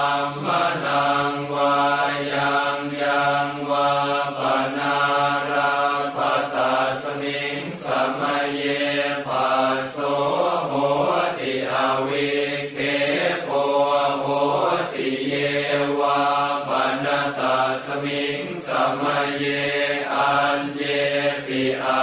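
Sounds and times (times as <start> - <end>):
voices chanting monotone: 0.0 - 22.0.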